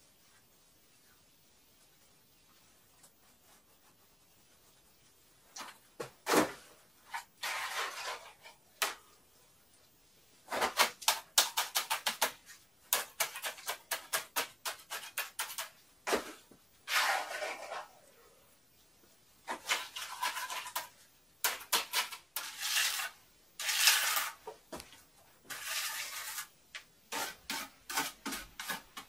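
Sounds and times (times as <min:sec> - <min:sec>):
bricks scraping: 0:06.2 - 0:08.6, 0:12.9 - 0:18.0, 0:19.5 - 0:24.6, 0:25.4 - 0:29.0.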